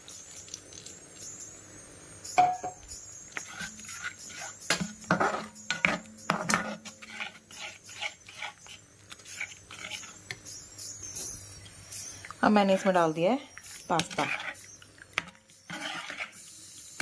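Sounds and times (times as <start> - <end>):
metal skimmer scraping a pan: 3.3 - 10.6, 12.4 - 16.6.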